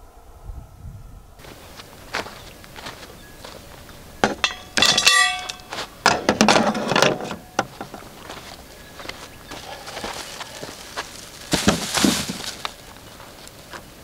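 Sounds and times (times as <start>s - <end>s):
loud ringing clink: 4.2s - 6.3s
clattering: 4.2s - 8.0s
hard objects knocking: 4.2s - 8.1s.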